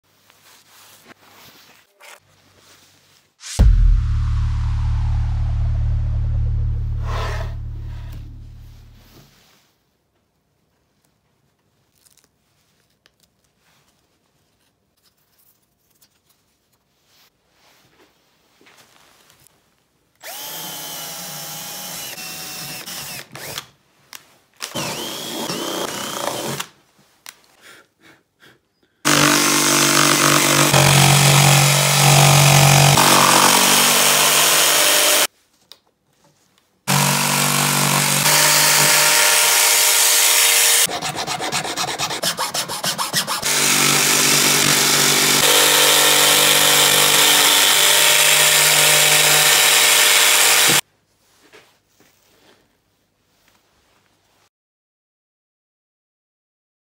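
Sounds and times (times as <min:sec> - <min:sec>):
jigsaw cutting board: 0:20.2 - 0:23.7, 0:24.6 - 0:26.8, 0:29.1 - 0:35.3, 0:36.9 - 0:50.8
power drill boring wood: 0:20.2 - 0:23.7, 0:24.6 - 0:26.7, 0:29.1 - 0:35.3, 0:36.9 - 0:40.9, 0:42.8 - 0:50.8.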